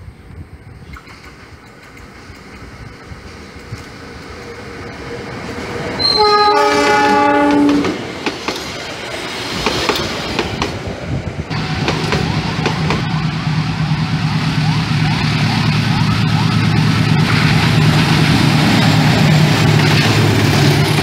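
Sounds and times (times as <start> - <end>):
train wheels clacking on rails: 0.9 - 21.0
locomotive horn: 6.0 - 8.0.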